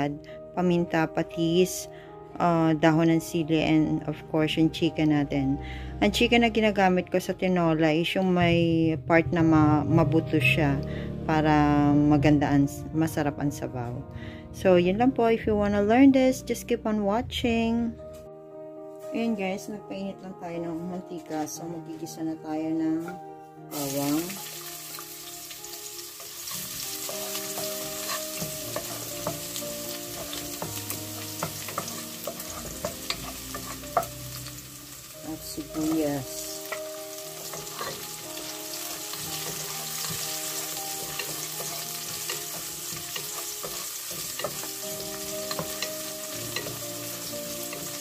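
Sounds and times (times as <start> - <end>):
garlic sizzling in hot oil: 23.7 - 48.0
wooden spoon scraping a pot: 27.0 - 29.5.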